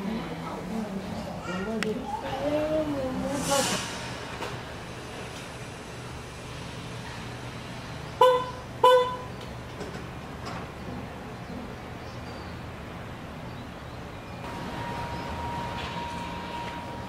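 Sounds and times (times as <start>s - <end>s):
background traffic hum: 0.0s - 17.0s
vehicle horn toots: 8.2s - 9.3s.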